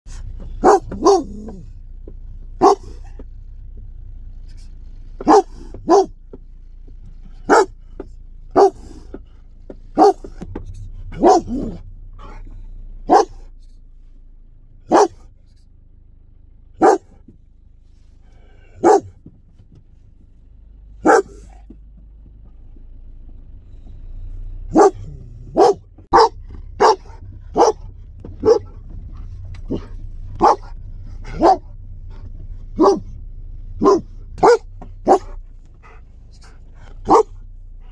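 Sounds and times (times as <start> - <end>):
dog barking: 0.5 - 1.7, 2.6 - 3.2, 5.2 - 6.2, 7.4 - 7.8, 8.5 - 9.1, 9.9 - 10.4, 11.1 - 12.4, 13.0 - 13.5, 14.9 - 15.3, 16.8 - 17.2, 18.7 - 19.2, 21.0 - 21.6, 24.7 - 28.8, 29.7 - 31.8, 32.7 - 33.2, 33.8 - 37.4.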